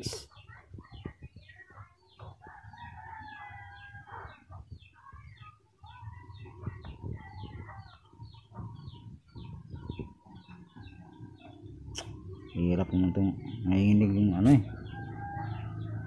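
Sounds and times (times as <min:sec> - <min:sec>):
faint rooster crowing: 0:14.4 - 0:16.0.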